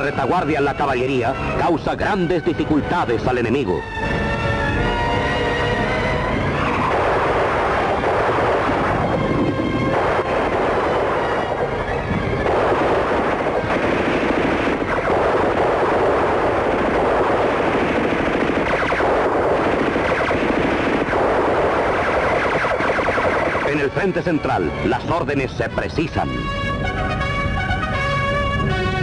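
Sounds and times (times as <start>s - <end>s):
machine gun firing bursts: 12.5s - 23.9s.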